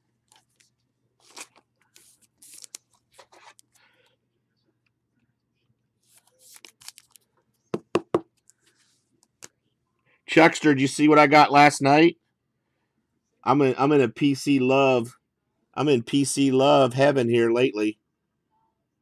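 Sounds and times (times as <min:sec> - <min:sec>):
plastic wrappers crinkling: 0:00.3 - 0:03.7, 0:06.3 - 0:07.3
knocks on tabletop: 0:07.8 - 0:08.3.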